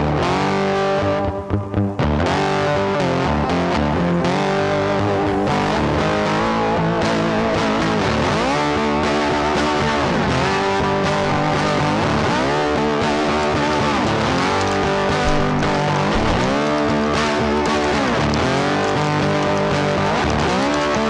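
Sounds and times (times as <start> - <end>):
distorted electric guitar music: 0.0 - 21.0.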